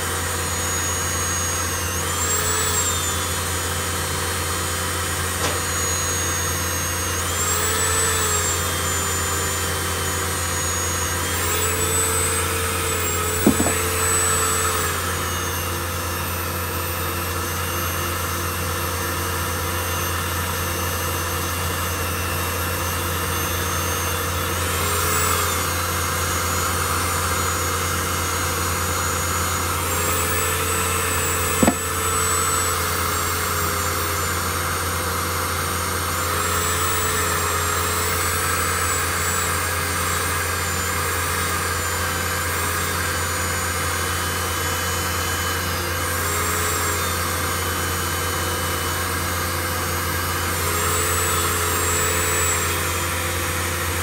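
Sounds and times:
lathe running: 0:00.0 - 0:20.4, 0:22.9 - 0:40.8
rotary tool whining and grinding: 0:00.0 - 0:54.0.

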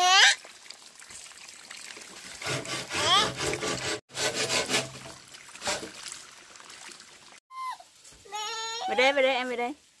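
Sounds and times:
bamboo poles knocking and scraping: 0:02.4 - 0:06.0
water splashing into plastic basin: 0:04.8 - 0:07.4.

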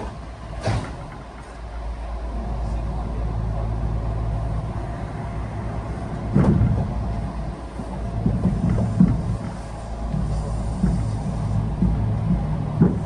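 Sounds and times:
electric train rumble and hum: 0:00.0 - 0:13.0
loud thumps: 0:06.3 - 0:07.2, 0:07.8 - 0:13.0.

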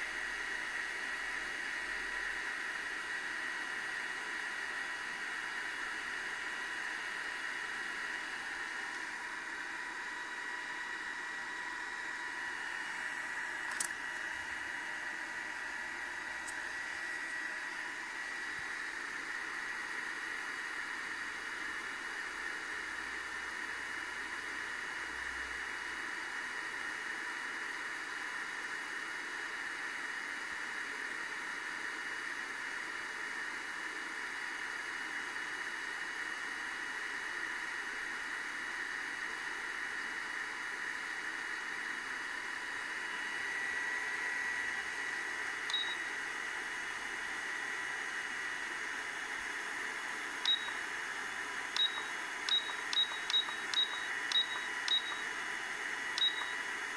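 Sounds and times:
faint high whine: 0:43.0 - 0:47.8, 0:49.9 - 0:56.9.

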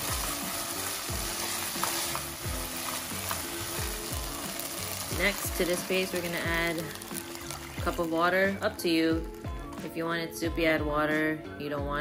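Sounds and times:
food sizzling in oil: 0:00.0 - 0:09.9
hip-hop beat: 0:02.0 - 0:12.0.

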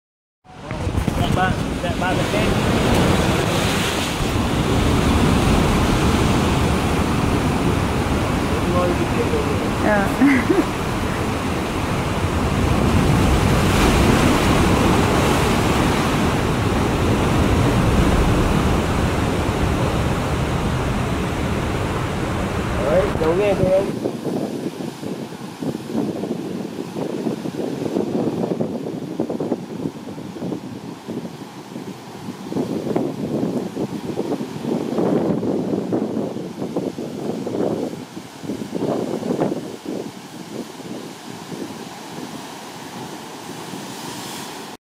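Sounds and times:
ocean surf breaking against rocks: 0:00.5 - 0:44.8
wind buffeting the microphone: 0:00.5 - 0:44.8.

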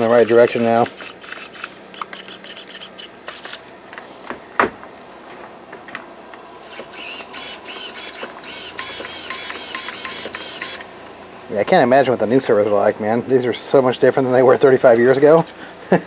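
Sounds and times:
servo whines: 0:06.6 - 0:10.9.

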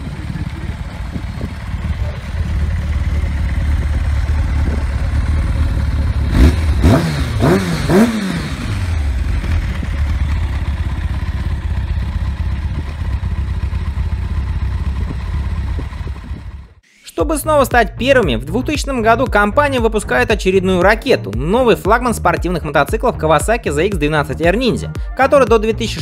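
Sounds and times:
motorcycle engine idling and revving: 0:00.0 - 0:16.8.

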